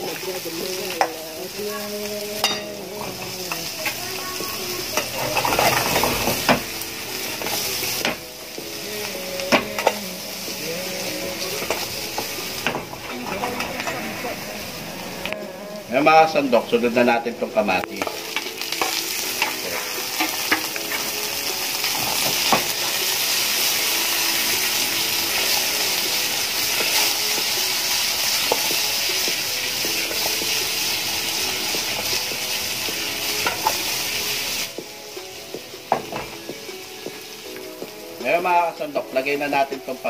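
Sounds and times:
vegetables sizzling in hot oil: 0.0s - 40.0s
spatula scraping a pan: 5.0s - 6.7s.

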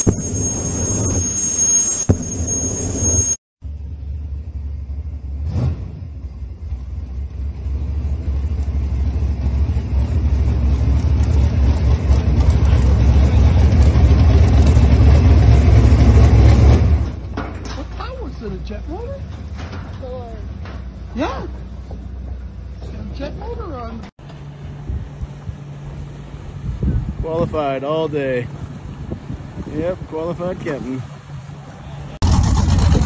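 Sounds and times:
boat motor rumbling: 7.0s - 33.0s.

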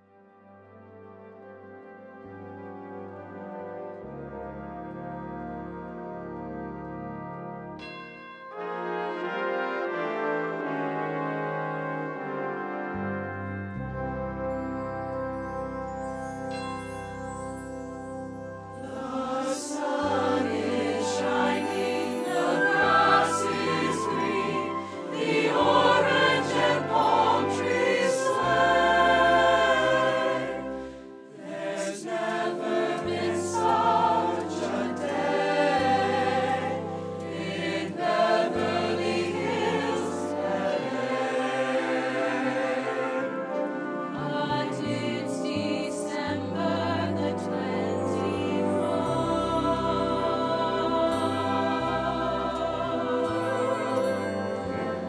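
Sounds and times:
instrumental accompaniment: 0.9s - 55.0s
mixed choir singing: 18.8s - 55.0s.

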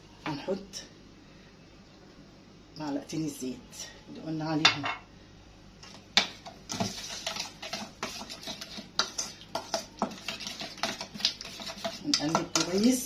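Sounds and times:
metal spoon scraping steel bowl: 6.7s - 13.0s.

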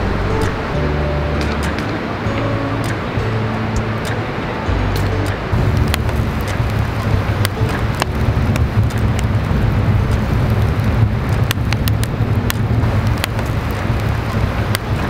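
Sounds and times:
rumble of flames: 0.0s - 15.0s
burning wood crackling and popping: 4.9s - 15.0s.

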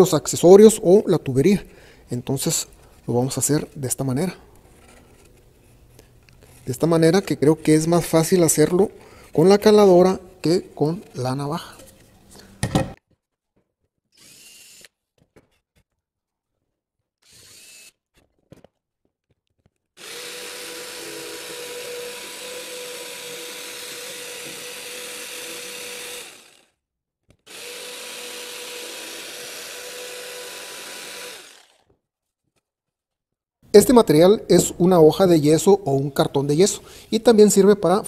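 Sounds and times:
cordless drill boring: 14.2s - 15.0s, 17.2s - 18.0s, 20.0s - 26.7s, 27.5s - 31.9s
jigsaw cutting board: 20.0s - 32.0s.

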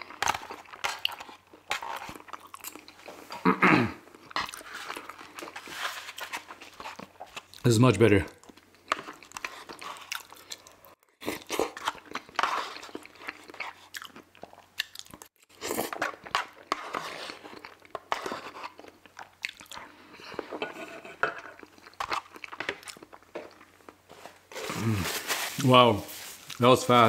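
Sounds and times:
chewing and wet mouth smacking: 4.1s - 5.6s, 8.3s - 16.7s, 17.3s - 20.0s, 21.6s - 23.7s.

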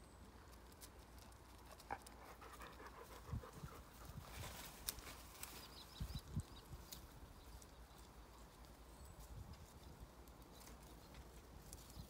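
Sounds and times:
faint rustles: 0.4s - 12.0s
dog panting: 1.8s - 4.1s.

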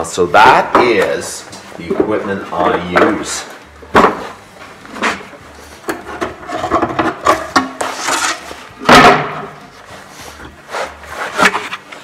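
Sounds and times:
wooden knocks and scraping: 0.6s - 9.6s.

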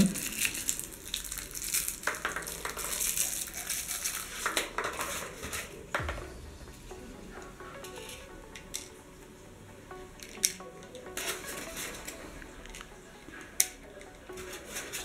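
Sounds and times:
plastic rustling: 0.0s - 6.1s, 10.2s - 15.0s.

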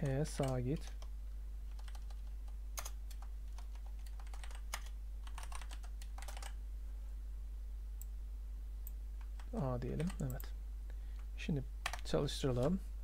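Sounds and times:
keyboard typing: 0.0s - 1.1s, 1.7s - 6.6s, 8.8s - 10.5s
steady low hum: 0.0s - 13.0s.

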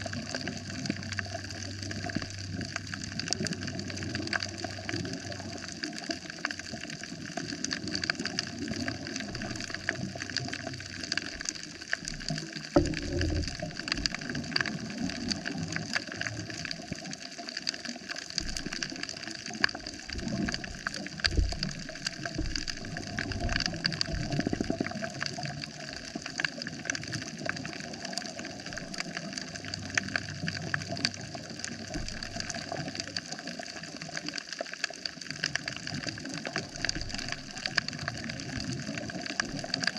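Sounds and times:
low underwater thumps: 12.8s - 14.3s, 18.4s - 18.9s, 20.0s - 24.9s
snapping shrimp crackle: 17.7s - 34.4s.

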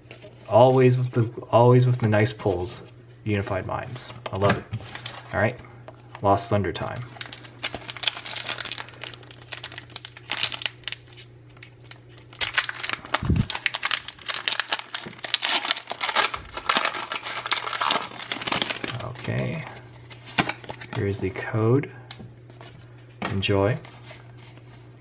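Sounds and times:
foil wrapper crinkling and tearing: 7.0s - 21.0s.

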